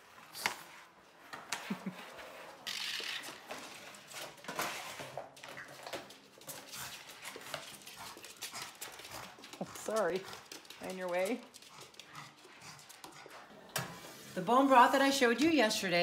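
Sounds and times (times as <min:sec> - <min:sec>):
dogs licking and eating: 0:05.3 - 0:13.7.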